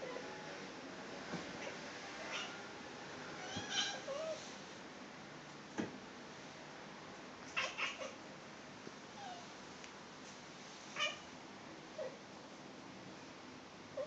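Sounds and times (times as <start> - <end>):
cat chirping meows: 3.4 - 4.4.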